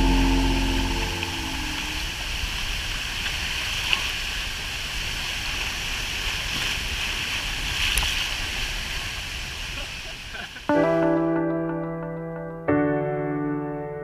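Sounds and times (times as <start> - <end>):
waterfall rushing: 0.0 - 11.7.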